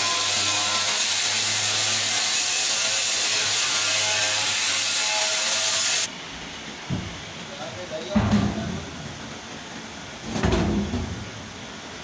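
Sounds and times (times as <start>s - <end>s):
handheld grinder grinding steel: 0.0s - 6.1s.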